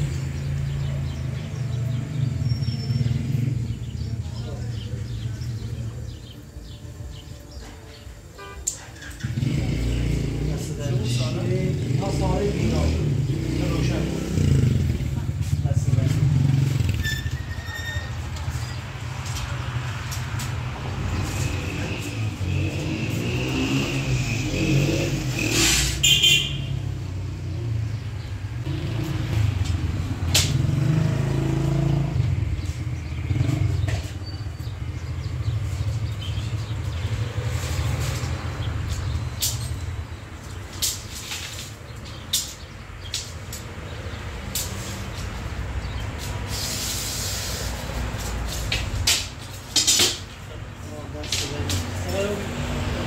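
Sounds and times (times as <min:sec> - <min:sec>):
engine rumbling: 0:00.0 - 0:53.0.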